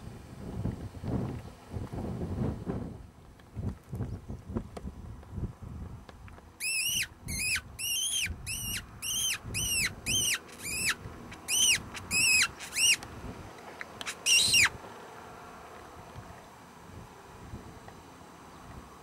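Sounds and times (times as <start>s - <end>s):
wind rumble on microphone: 0.0s - 13.6s, 16.0s - 18.0s
high squeaky animal calls: 6.6s - 13.0s, 14.0s - 14.8s.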